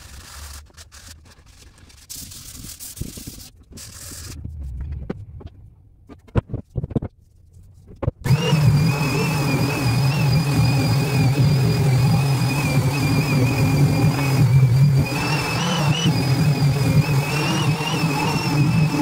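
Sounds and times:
orbital sander running: 8.3s - 19.0s.

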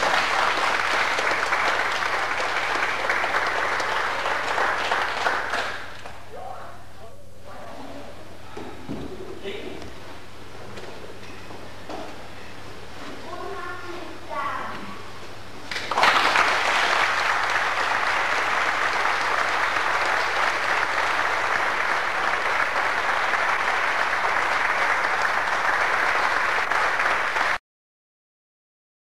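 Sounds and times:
audience applauding: 0.0s - 6.2s, 15.7s - 27.6s.

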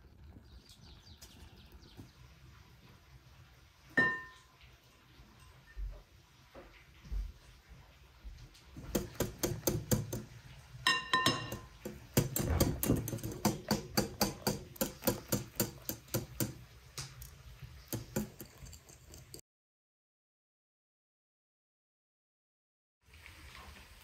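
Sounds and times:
metal clink on glass: 4.0s - 4.5s, 10.9s - 11.7s
whisk clicking against glass bowl: 8.8s - 10.3s, 10.9s - 16.6s, 17.9s - 19.4s.

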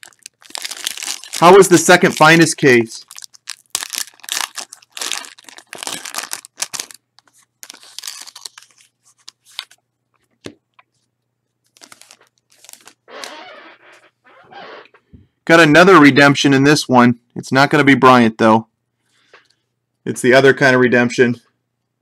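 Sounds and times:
foil wrapper tearing and crinkling: 0.0s - 9.8s, 11.7s - 13.3s.

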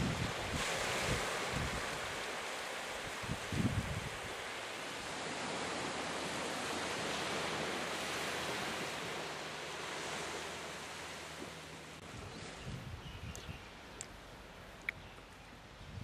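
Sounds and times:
small waves on sandy beach: 0.0s - 12.8s.

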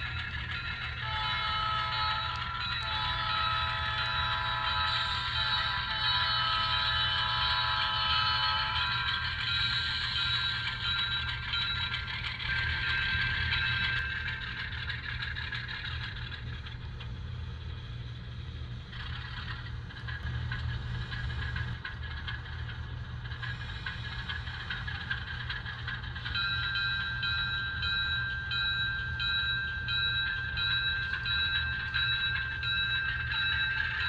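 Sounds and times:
diesel engine running from small speaker: 0.0s - 34.0s
steady high tones: 24.7s - 34.0s.

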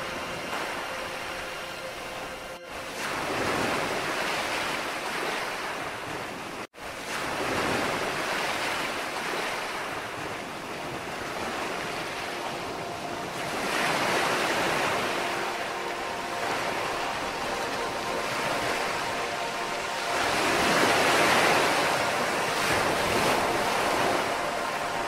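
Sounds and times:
small waves breaking on beach: 0.0s - 25.0s.

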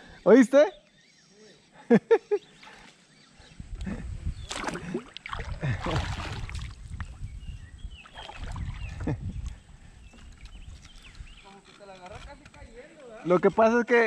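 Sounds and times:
fish splashing at water surface: 4.5s - 6.7s.

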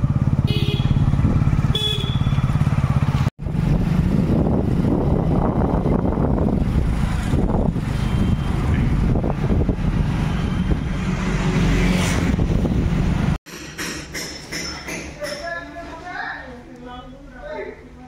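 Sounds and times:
motorbike engine running: 0.0s - 10.3s
road and wind noise: 0.0s - 13.5s.

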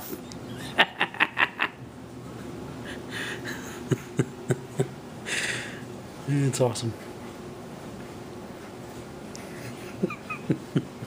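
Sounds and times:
man laughing quietly: 0.4s - 5.8s, 9.3s - 11.0s.

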